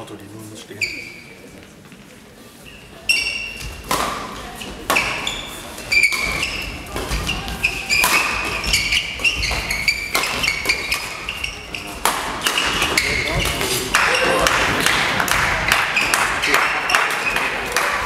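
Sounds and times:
shoes squeaking on court floor: 0:00.7 - 0:14.4
rackets striking shuttlecock: 0:03.6 - 0:05.3, 0:06.0 - 0:11.2, 0:11.8 - 0:17.4.

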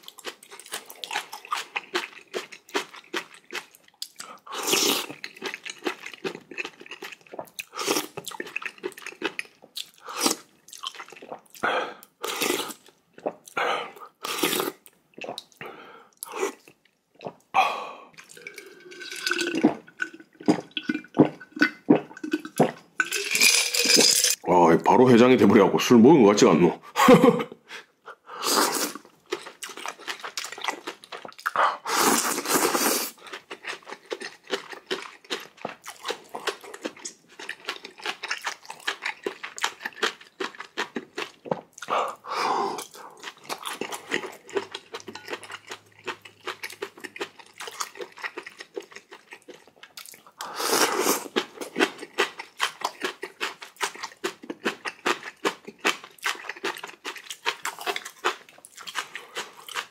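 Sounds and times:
chewing and crunching: 0:00.0 - 0:13.6, 0:28.9 - 0:31.6, 0:32.2 - 0:59.9.

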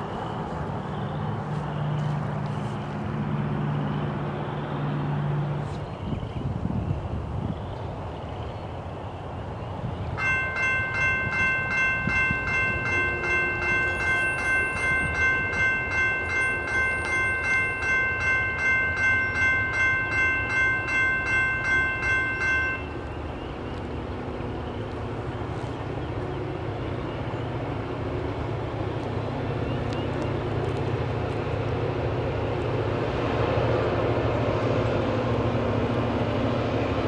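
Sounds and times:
railroad crossing bell ringing: 0:10.1 - 0:30.5.

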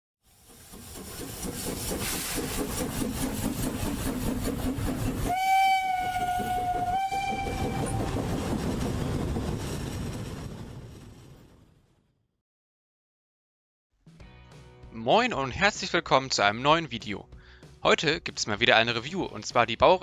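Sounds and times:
train clattering: 0:00.3 - 0:11.5
train whistle blasts: 0:05.3 - 0:08.2.

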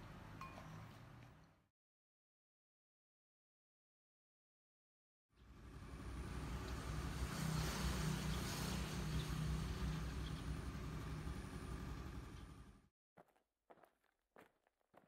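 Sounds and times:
outdoor background noise: 0:00.0 - 0:01.7, 0:05.4 - 0:12.9
vehicle engine humming: 0:05.4 - 0:12.9.

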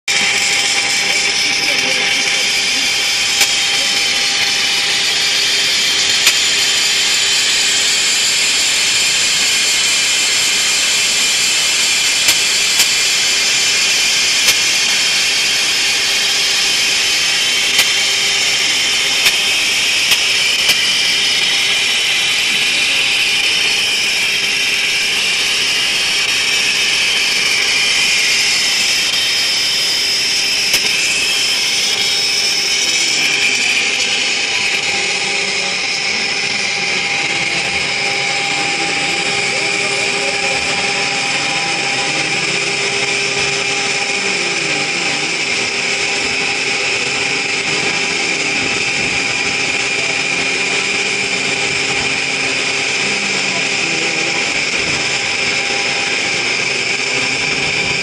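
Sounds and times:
high-pitched metal cutting noise: 0:00.0 - 0:58.0
machine running: 0:00.0 - 0:58.0
sharp ticks: 0:03.1 - 0:03.8.

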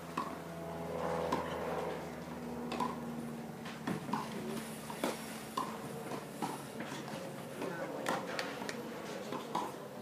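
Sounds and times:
tennis ball bouncing: 0:00.2 - 0:00.4, 0:02.7 - 0:03.0, 0:03.8 - 0:07.0, 0:08.0 - 0:09.8.

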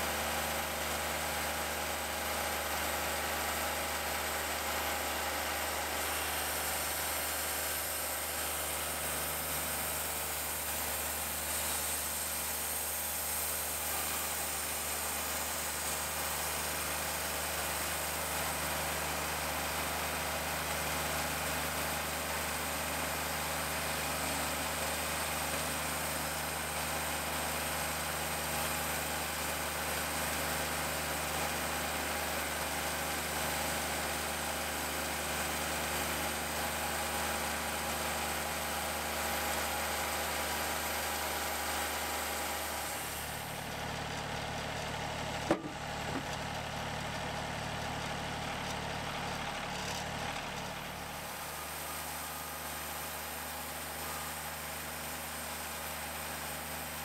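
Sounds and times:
sawmill engine running: 0:00.0 - 0:57.0
band saw hissing through log: 0:03.4 - 0:19.8, 0:33.6 - 0:43.7, 0:50.8 - 0:57.0
sharp knock: 0:45.5 - 0:45.8.

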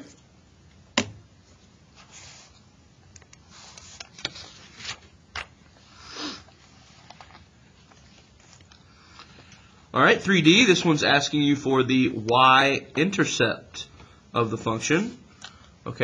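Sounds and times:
paper pages rustling: 0:01.9 - 0:05.5, 0:06.5 - 0:09.4.

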